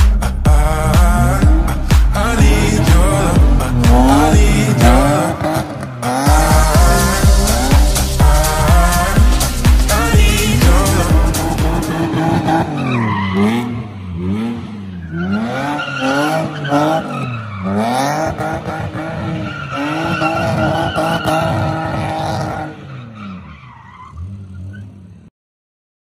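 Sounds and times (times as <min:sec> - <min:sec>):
car engine revving: 0:00.0 - 0:23.4
tyres squealing on tarmac: 0:11.8 - 0:13.8, 0:14.9 - 0:18.3, 0:19.0 - 0:25.0.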